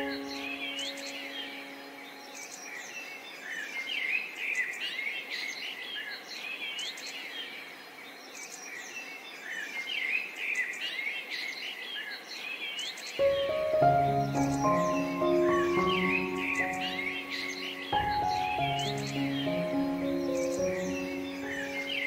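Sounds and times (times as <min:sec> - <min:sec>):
held piano chord: 0:00.0 - 0:02.8, 0:13.2 - 0:22.0
songbirds chirping and trilling: 0:00.0 - 0:22.0.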